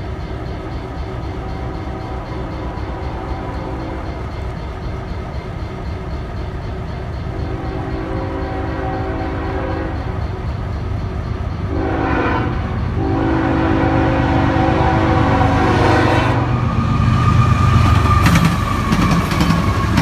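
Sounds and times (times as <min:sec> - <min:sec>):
diesel locomotive engines rumbling: 0:00.0 - 0:20.0
multi-note train horn: 0:07.5 - 0:10.2, 0:11.7 - 0:16.7.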